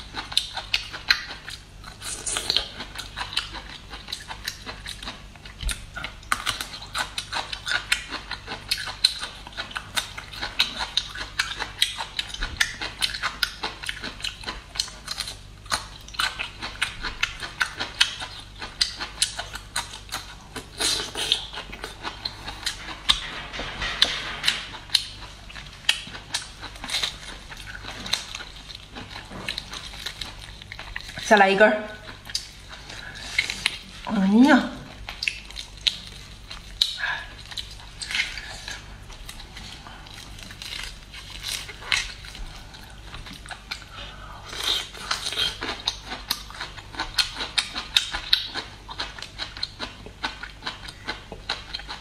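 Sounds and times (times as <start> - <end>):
crunchy chewing: 0.0 - 31.3, 32.0 - 34.1, 34.9 - 52.0.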